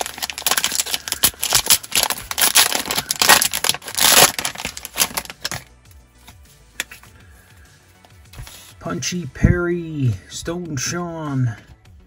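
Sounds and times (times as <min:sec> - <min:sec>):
foil wrapper tearing and crinkling: 0:00.0 - 0:05.7.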